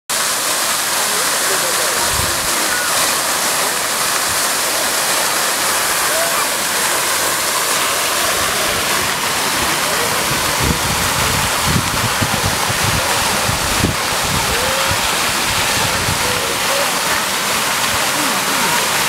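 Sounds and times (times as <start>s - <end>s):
fountain water splashing: 0.1s - 19.0s
wind buffeting microphone: 2.0s - 2.6s, 8.2s - 18.0s.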